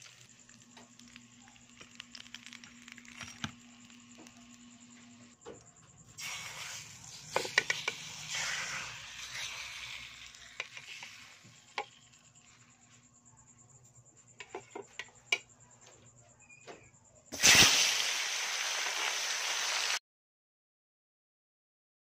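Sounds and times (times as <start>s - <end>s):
cooking oil sizzling and popping: 0.0s - 5.4s, 6.1s - 12.7s, 17.3s - 20.0s.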